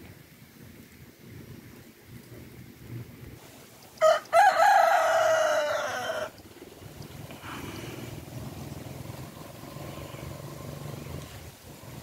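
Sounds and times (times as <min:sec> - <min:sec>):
rooster crowing: 0:04.0 - 0:06.4.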